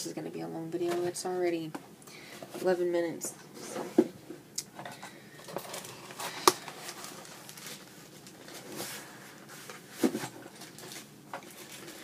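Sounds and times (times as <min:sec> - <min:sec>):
packaging rustling: 0:05.4 - 0:12.0.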